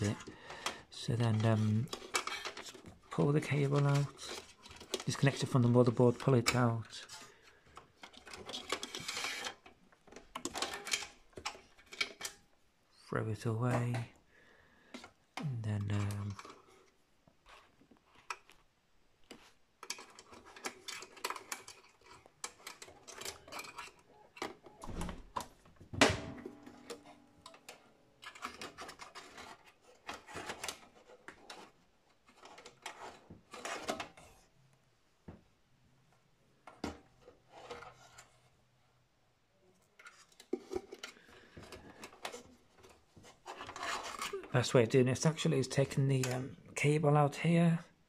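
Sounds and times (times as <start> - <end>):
metal and plastic parts rattling: 0.0 - 12.5, 14.9 - 18.6, 19.3 - 34.4, 39.8 - 44.8.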